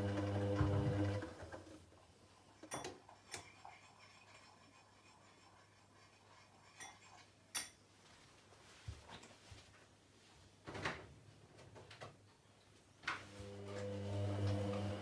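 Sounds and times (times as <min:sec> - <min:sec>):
washing machine humming: 0:00.0 - 0:01.8, 0:13.2 - 0:15.0.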